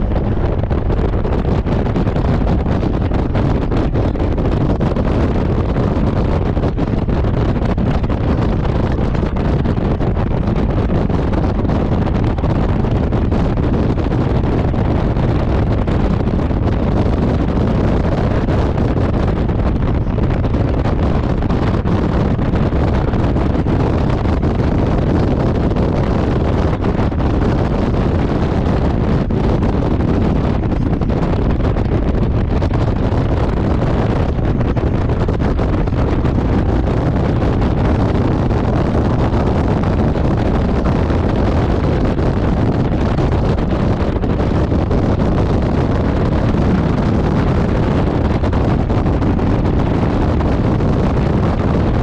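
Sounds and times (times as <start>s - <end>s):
motorcycle engine and road rumble: 0.0s - 52.0s
wind rushing over microphone: 0.0s - 52.0s.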